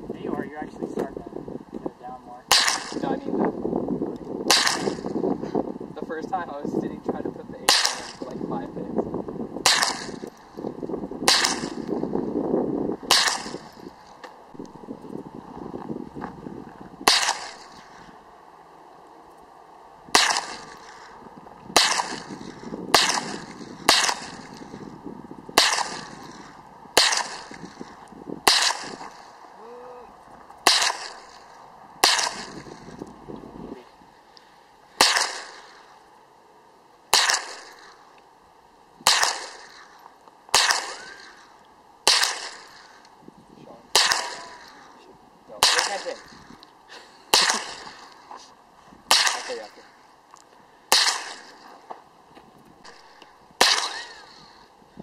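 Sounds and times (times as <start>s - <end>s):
rifle shots with echo: 2.4s - 3.3s, 4.4s - 5.2s, 7.6s - 8.8s, 9.6s - 10.5s, 11.2s - 12.1s, 13.0s - 14.0s, 17.0s - 18.0s, 20.1s - 24.9s, 25.5s - 29.4s, 30.6s - 33.0s, 35.0s - 36.0s, 37.1s - 38.1s, 39.0s - 43.0s, 43.9s - 45.0s, 45.6s - 46.5s, 47.3s - 48.2s, 49.1s - 49.9s, 50.9s - 51.7s, 52.9s - 54.4s.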